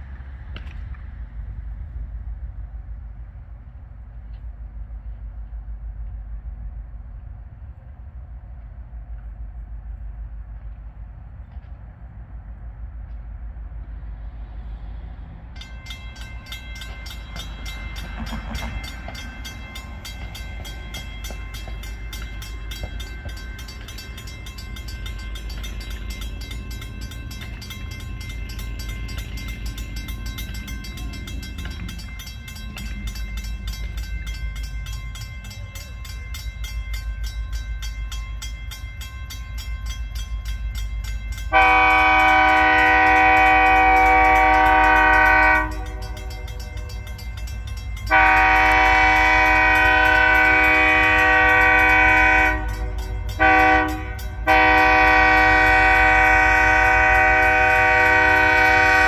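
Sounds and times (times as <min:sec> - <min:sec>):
crossing bell ringing: 0:14.6 - 0:59.0
train air horn chord: 0:41.5 - 0:46.4, 0:48.1 - 0:59.0.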